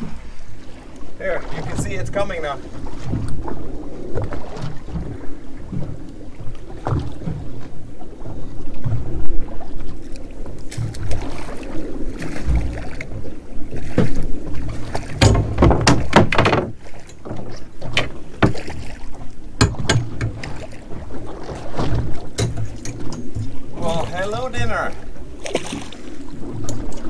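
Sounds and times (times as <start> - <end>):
sharp water splashes: 0.0 - 27.0
water lapping against boat hull: 0.0 - 27.0.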